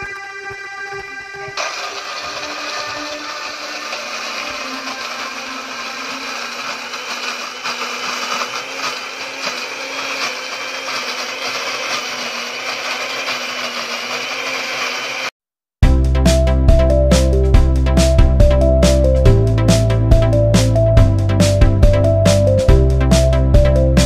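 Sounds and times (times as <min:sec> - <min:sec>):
blender grinding paste: 0:01.6 - 0:15.4.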